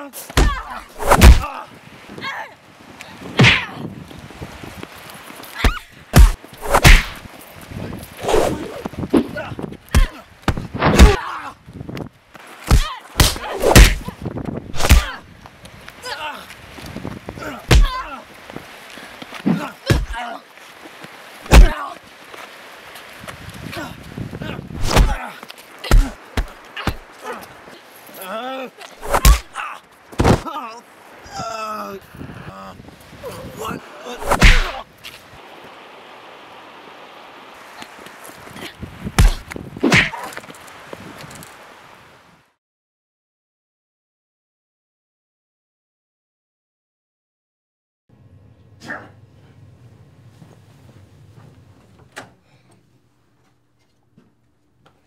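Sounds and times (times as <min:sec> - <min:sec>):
fighters grunting and shouting: 0:00.0 - 0:02.5, 0:10.9 - 0:11.6, 0:14.8 - 0:15.2, 0:16.0 - 0:16.6, 0:17.4 - 0:18.3, 0:19.4 - 0:20.5, 0:21.5 - 0:22.0, 0:23.7 - 0:34.9
punch smacks: 0:00.4 - 0:01.5, 0:03.4 - 0:03.7, 0:06.2 - 0:07.2, 0:12.7 - 0:14.0, 0:14.8 - 0:15.2, 0:24.8 - 0:25.2, 0:29.0 - 0:29.5, 0:34.2 - 0:34.8, 0:39.2 - 0:40.2
steady background hiss: 0:24.7 - 0:39.2.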